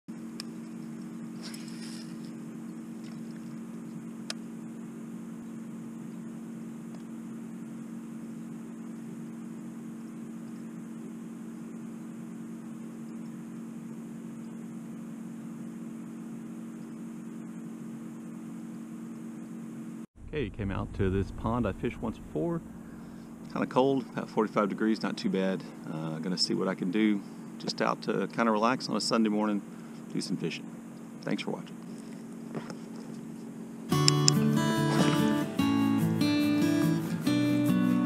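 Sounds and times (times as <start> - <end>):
steady low hum: 0.1 - 37.4
sharp click: 34.0 - 34.4
brief high hiss: 34.8 - 35.6.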